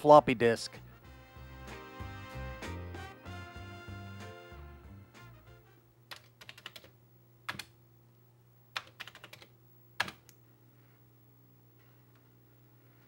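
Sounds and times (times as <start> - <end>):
steady low hum: 4.8 - 13.0
keyboard keys clicking: 6.1 - 6.9, 7.5 - 7.7, 8.8 - 10.4.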